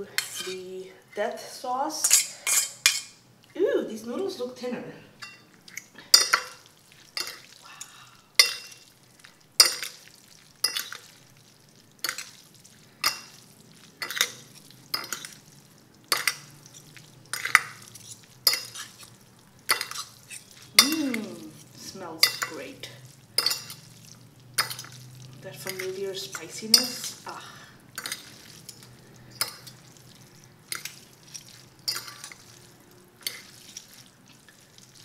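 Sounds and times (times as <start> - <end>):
forks mixing noodles in sauce: 0.2 - 0.6, 5.7 - 7.6, 8.4 - 35.0
forks clinking on plate: 2.0 - 3.2, 19.7 - 21.3, 23.4 - 23.9, 30.7 - 32.5.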